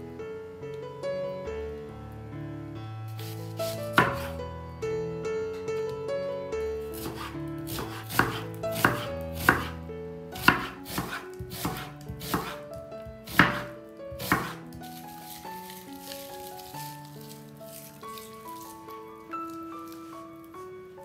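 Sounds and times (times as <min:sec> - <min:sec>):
background music: 0:00.0 - 0:21.0
knife knocking on cutting board: 0:04.0 - 0:04.3, 0:07.0 - 0:09.7, 0:10.4 - 0:14.8.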